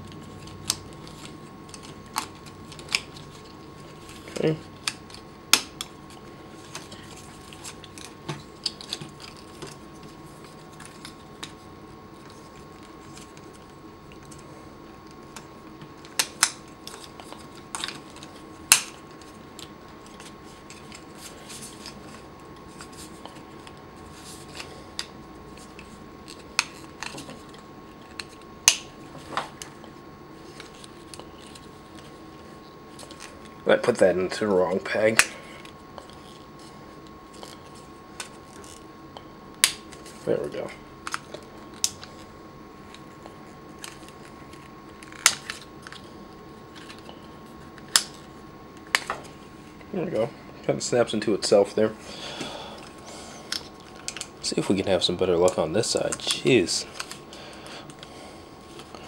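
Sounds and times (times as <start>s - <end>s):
faint hum with thin high tone: 0.0s - 59.0s.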